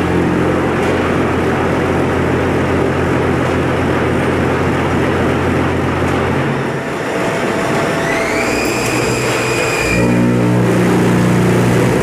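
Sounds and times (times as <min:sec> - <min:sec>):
loud mechanical din: 0:00.0 - 0:12.0
low hum: 0:00.0 - 0:12.0
machine whine rising in pitch: 0:06.6 - 0:12.0.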